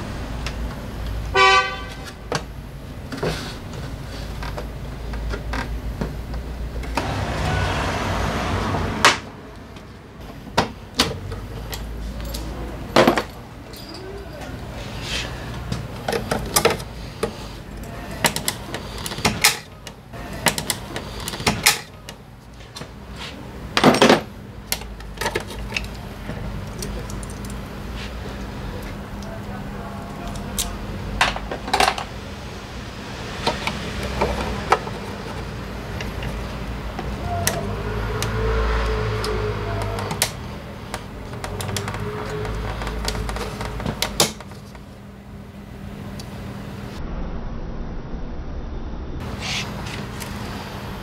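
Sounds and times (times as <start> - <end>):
hand tools clicking and clinking: 11.2 - 14.7, 26.6 - 27.6
rushing noise: 32.1 - 40.2, 46.7 - 51.0.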